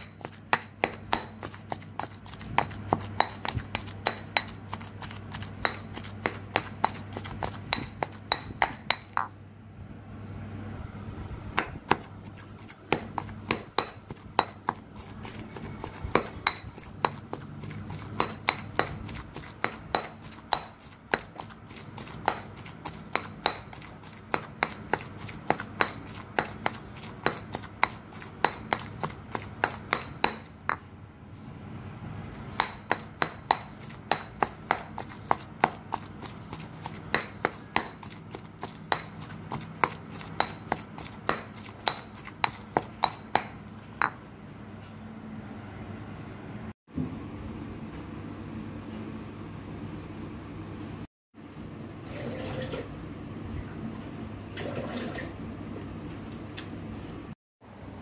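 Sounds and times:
pestle pounding in stone mortar: 0.0s - 9.3s, 11.5s - 30.8s, 32.3s - 44.2s.

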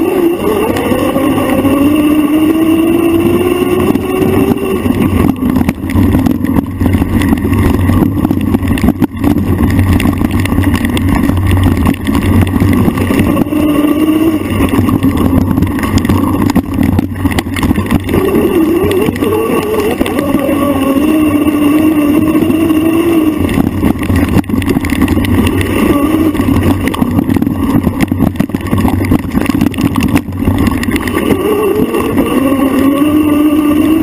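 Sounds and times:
dirt bike engine revving: 0.0s - 6.3s, 12.7s - 15.4s, 18.0s - 23.5s, 25.5s - 27.2s, 31.1s - 34.0s
wind: 0.0s - 34.0s.

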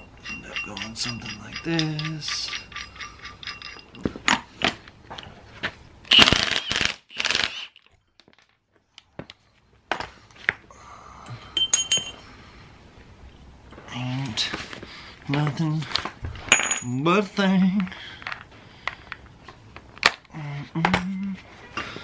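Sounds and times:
metal tools clinking: 0.0s - 5.4s, 11.3s - 12.2s, 16.5s - 17.0s
noisy bursts: 6.0s - 7.9s.

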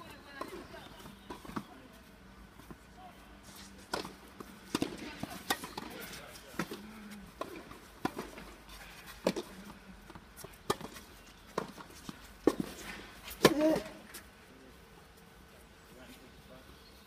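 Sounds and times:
racket striking ball: 3.9s - 8.5s
tennis ball knocking: 3.9s - 8.6s.

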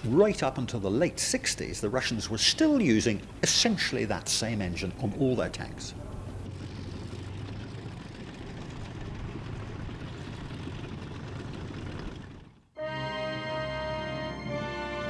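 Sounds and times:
tank engine rumbling: 0.0s - 15.0s.

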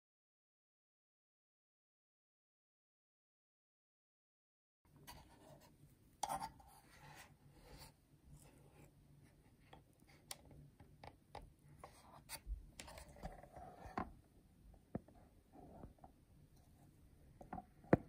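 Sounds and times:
small clicks and taps: 9.6s - 12.0s.

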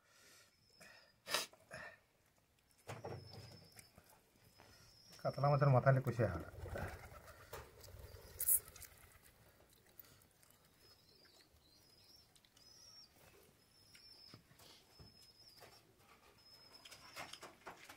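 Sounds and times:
small bird chirping: 2.6s - 6.0s, 7.1s - 17.8s.

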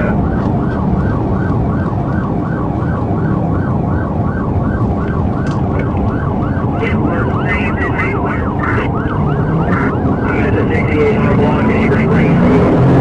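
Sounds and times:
car engine and road noise: 0.0s - 13.0s
police siren yelp: 0.0s - 13.0s.

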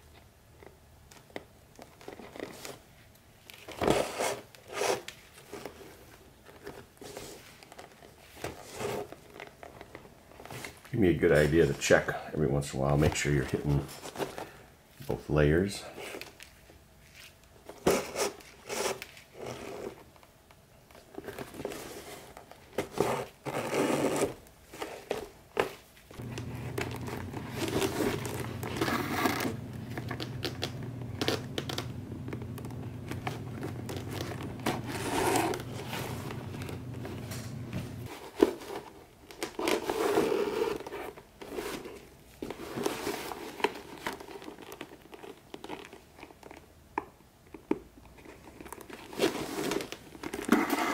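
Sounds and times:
steady low hum: 26.2s - 38.1s.

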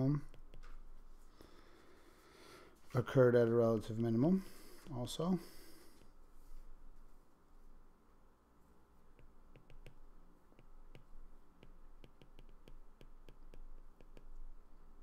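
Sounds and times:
stylus tapping on glass screen: 9.1s - 14.4s.

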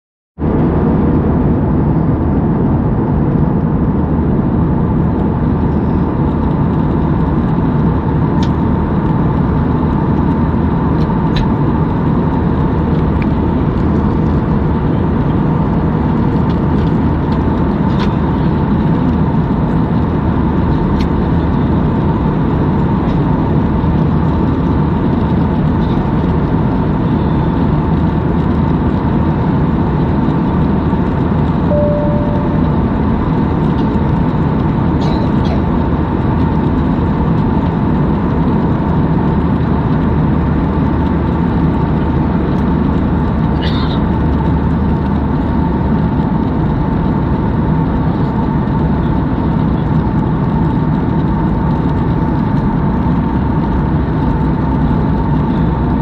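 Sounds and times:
jet engine and airflow roar: 0.4s - 56.0s
faint steady hum: 31.6s - 34.2s.

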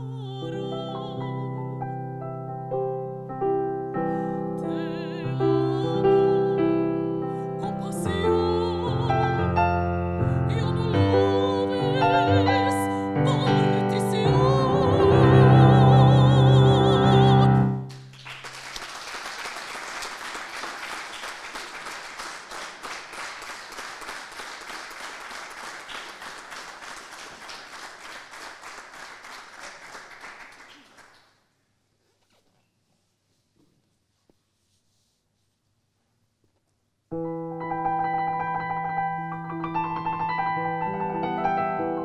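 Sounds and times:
woman singing operatically: 0.0s - 1.7s, 4.6s - 17.8s
digital piano: 0.0s - 17.9s, 37.1s - 42.0s
audience applauding: 17.9s - 31.3s.

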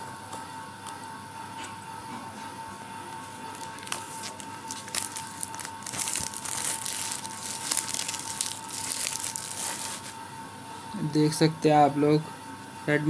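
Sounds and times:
faint high hum: 0.0s - 13.0s
plastic wrap crinkling and tearing: 3.4s - 10.2s.

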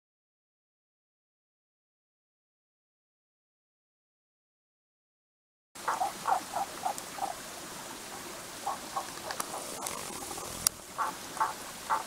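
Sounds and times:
frogs croaking: 5.8s - 12.0s
small stream rushing: 5.8s - 12.0s
sharp clicks: 9.1s - 10.8s.

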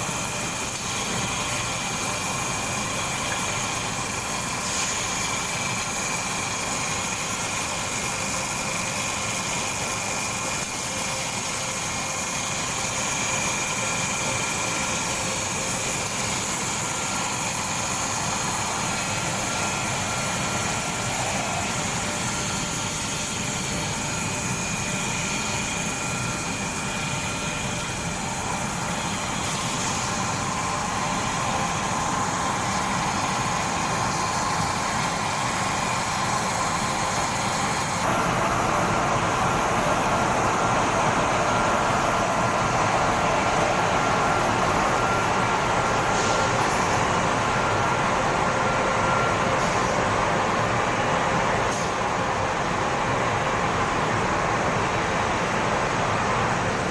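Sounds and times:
machinery hum: 0.0s - 56.9s.

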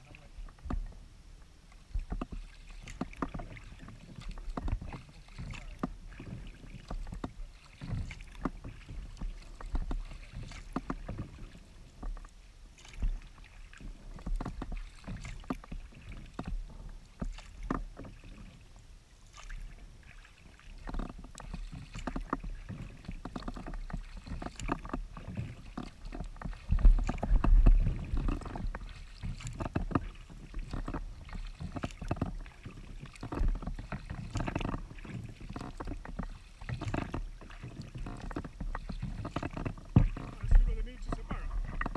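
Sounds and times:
paddle strokes splashing: 0.0s - 41.9s
small clicks and knocks on boat: 0.0s - 41.9s
low rumble: 40.0s - 41.9s.

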